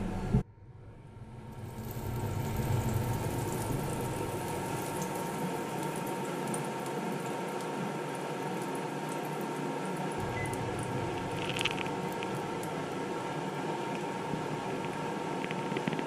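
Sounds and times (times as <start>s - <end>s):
butter sizzling in a pan: 1.6s - 9.6s.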